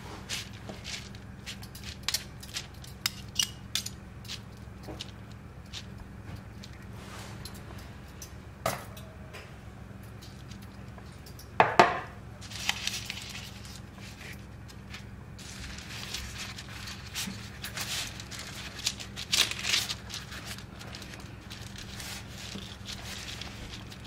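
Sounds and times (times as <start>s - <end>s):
dough sheets crinkling: 0.0s - 7.5s, 12.3s - 24.0s.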